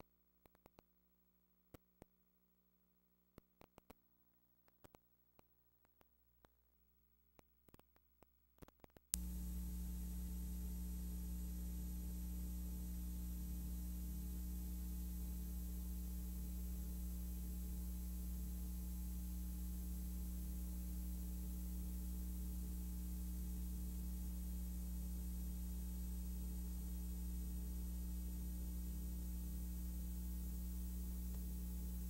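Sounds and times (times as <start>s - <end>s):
clicks: 3.4s - 4.0s, 4.6s - 6.6s, 7.4s - 9.3s
electrical mains hum with hiss: 8.6s - 32.0s.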